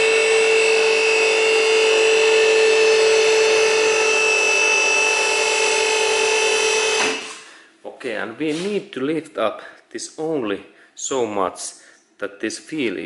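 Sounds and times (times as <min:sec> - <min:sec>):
hydraulic pump motor whining: 0:00.0 - 0:07.5.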